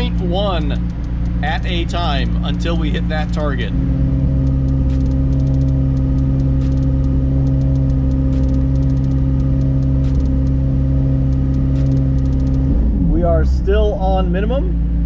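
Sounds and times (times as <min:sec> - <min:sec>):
car engine at steady revs: 0:00.0 - 0:15.0.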